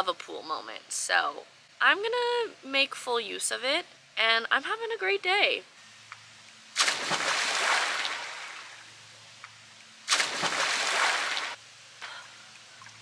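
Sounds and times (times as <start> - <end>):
splashes into pool water: 6.8 - 8.8, 10.1 - 11.6.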